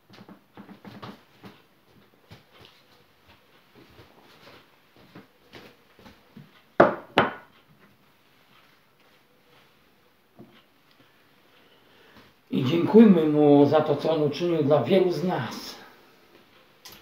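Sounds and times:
loud knocks on cabinet: 6.8s - 7.5s.

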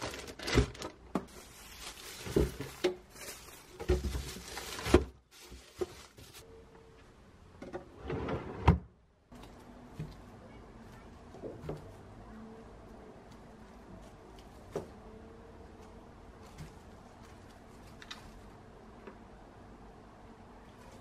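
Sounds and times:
plastic bags rustling: 0.0s - 6.5s.

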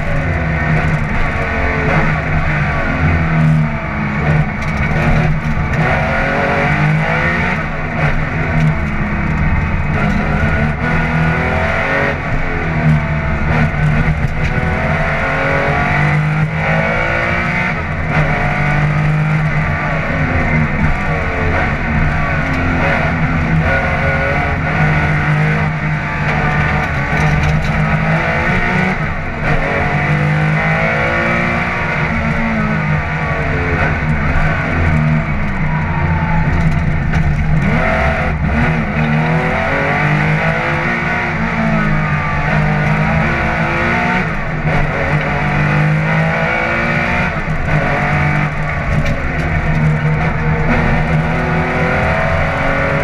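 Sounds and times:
rally car engine revving: 0.0s - 53.0s.

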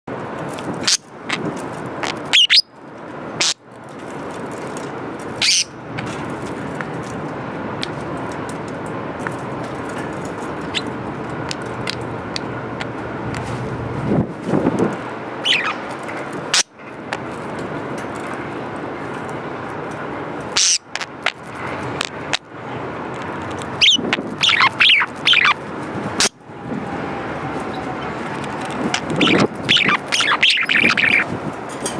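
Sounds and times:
steady background noise: 0.1s - 31.9s
budgerigar chirping: 2.0s - 2.7s, 5.4s - 5.8s, 15.4s - 15.8s, 20.6s - 21.1s, 23.8s - 25.6s, 29.0s - 31.3s.

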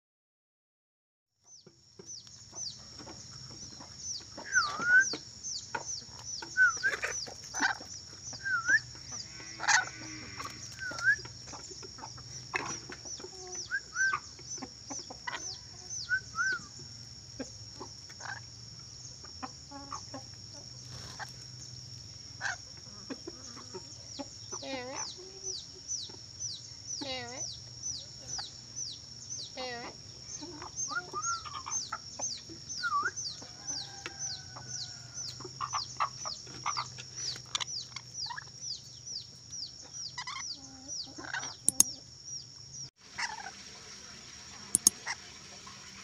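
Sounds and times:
chickens clucking: 1.4s - 46.0s
high-pitched whine with chirps: 2.0s - 18.4s.

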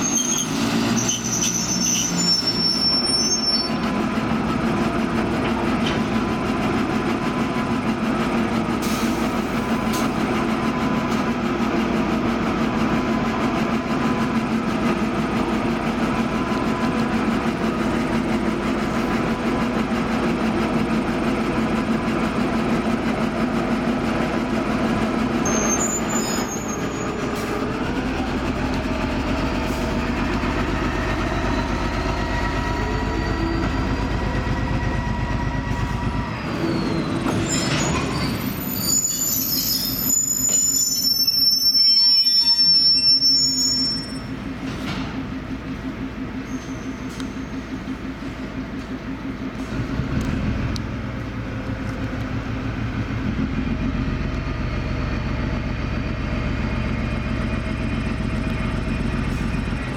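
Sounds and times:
steel wheel squeal: 0.0s - 3.9s, 25.4s - 27.4s, 31.0s - 34.4s, 35.4s - 44.4s, 46.5s - 47.6s
locomotive engine rumbling: 0.0s - 59.9s.

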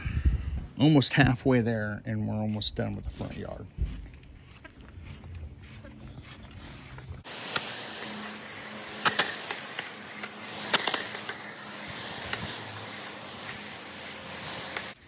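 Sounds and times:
hose sprayer hissing: 5.6s - 15.0s
sharp clicks: 9.0s - 15.0s.

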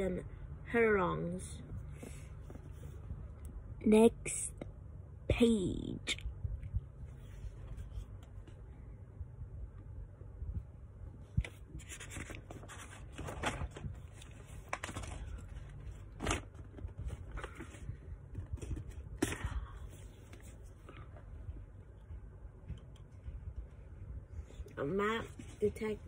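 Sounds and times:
paper rustling and scraping: 11.4s - 19.4s.

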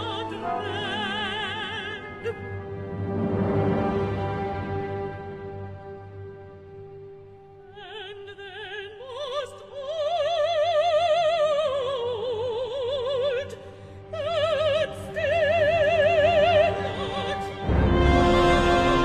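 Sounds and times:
woman singing with vibrato: 0.0s - 2.6s, 7.7s - 19.0s
orchestral chord: 17.6s - 19.0s.

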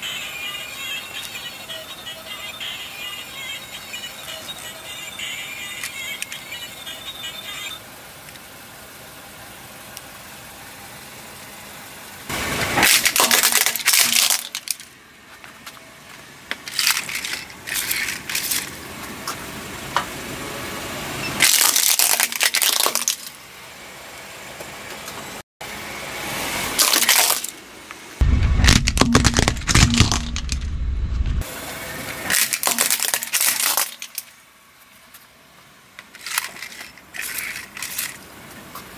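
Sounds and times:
plastic toys cracking under tyre: 12.8s - 14.9s, 16.6s - 18.8s, 21.4s - 23.3s, 26.8s - 27.6s, 28.6s - 30.6s, 32.3s - 34.3s.

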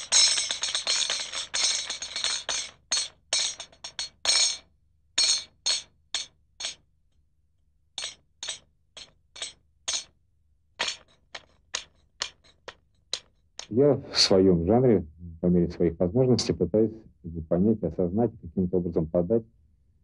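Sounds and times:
metallic jingling strikes: 0.0s - 6.8s, 8.0s - 10.1s.

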